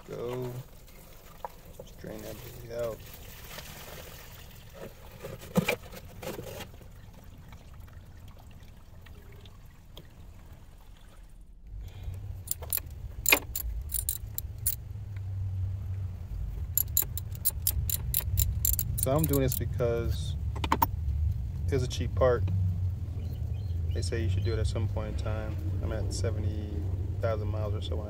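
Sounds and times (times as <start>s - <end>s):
low steady hum: 7.0s - 28.0s
sharp metallic clicks: 12.4s - 14.8s, 16.7s - 19.7s
metal tools clinking on hose clamps: 12.5s - 14.8s, 16.8s - 19.7s.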